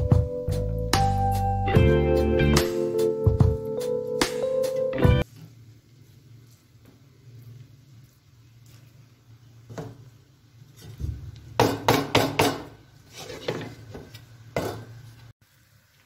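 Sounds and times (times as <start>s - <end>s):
spatula knocking and scraping pan: 10.8s - 15.0s.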